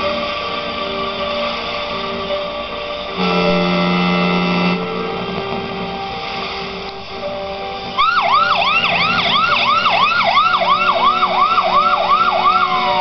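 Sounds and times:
ambulance siren yelping: 0:08.0 - 0:13.0.

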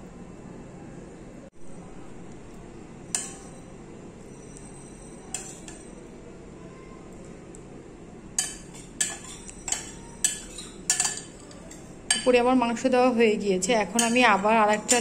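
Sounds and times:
low background noise: 0:00.0 - 0:15.0
metal spoon clinking against pot: 0:03.1 - 0:03.7, 0:04.5 - 0:06.1, 0:08.4 - 0:12.4, 0:13.8 - 0:15.0.

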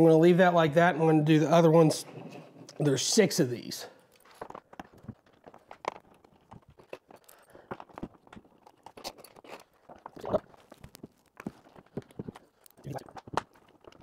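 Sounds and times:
hands handling plastic shell: 0:04.1 - 0:14.0.

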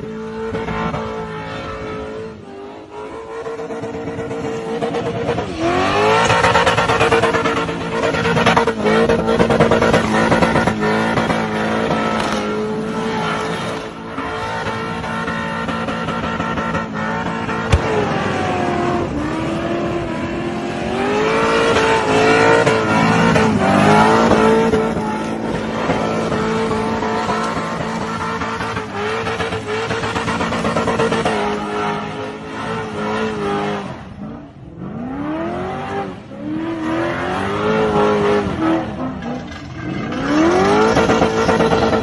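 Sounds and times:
car engine revving hard: 0:00.0 - 0:42.0
sharp crack: 0:12.0 - 0:12.6, 0:17.6 - 0:18.5.

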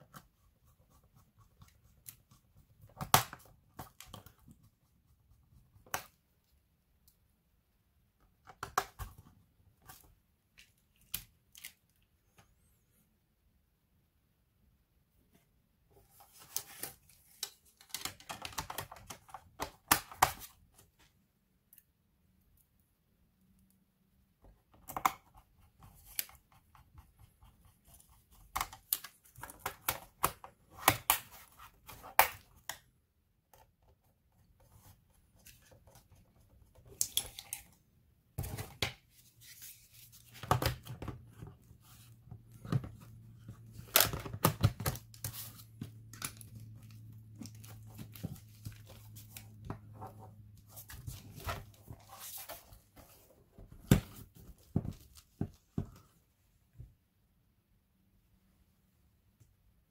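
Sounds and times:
laptop being handled: 0:16.0 - 0:21.1, 0:38.3 - 0:56.2.

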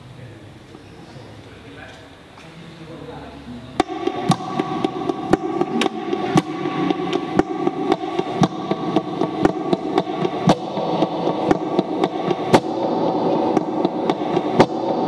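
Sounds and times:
sharp percussive clicks: 0:03.8 - 0:15.0.

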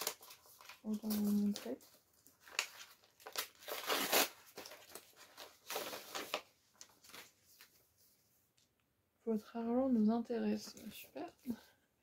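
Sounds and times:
packaging rustling: 0:00.0 - 0:07.8
packaging tearing: 0:02.4 - 0:06.4.

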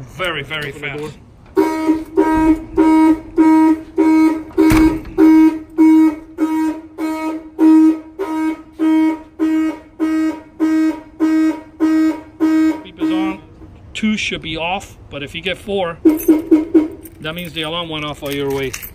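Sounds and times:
car alarm horn honking: 0:01.5 - 0:13.5, 0:16.0 - 0:17.2.

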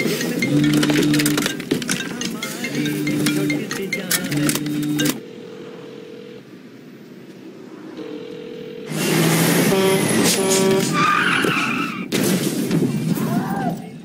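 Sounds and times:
car engine running hard: 0:04.3 - 0:11.1
car tyres squealing: 0:08.9 - 0:12.2.

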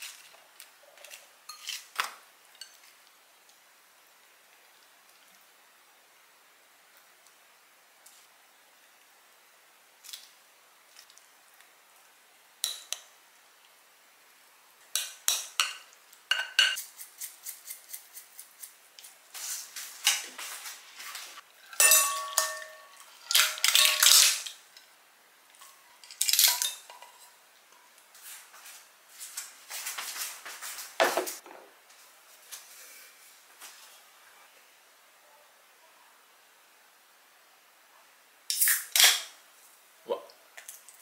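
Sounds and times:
ceramic dishes clinking: 0:21.7 - 0:24.1.

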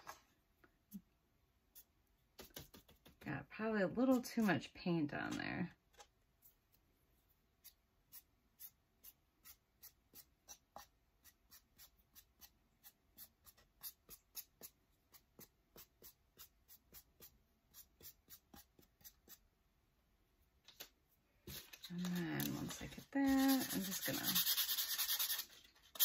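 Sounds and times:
paintbrush strokes: 0:21.5 - 0:26.0.

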